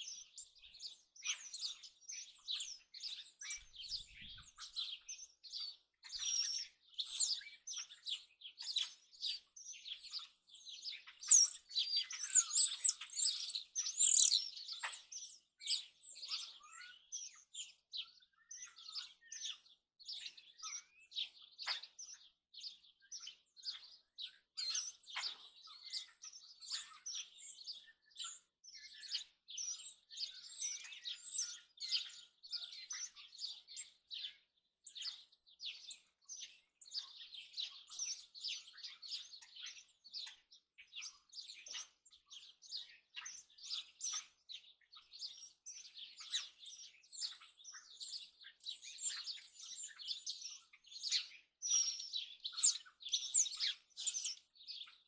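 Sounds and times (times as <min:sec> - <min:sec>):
many birds chirping: 0:00.0 - 0:55.0.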